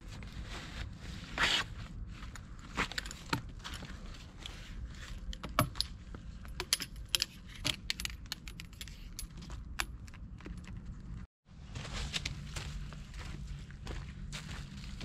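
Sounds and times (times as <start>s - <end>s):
trekking poles clicking and clinking: 2.4s - 11.3s.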